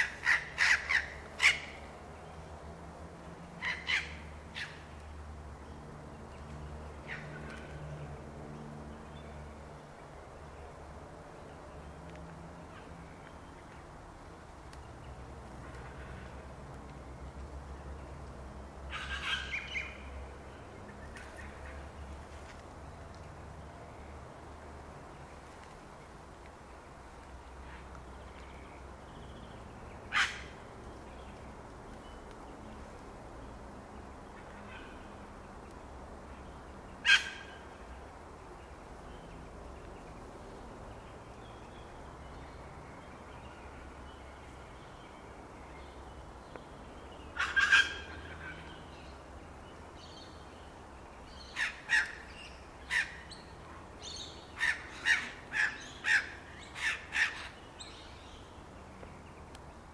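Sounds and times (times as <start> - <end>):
birds calling: 0.0 - 2.4, 3.5 - 7.8, 18.9 - 22.6, 26.6 - 32.9, 34.0 - 59.8.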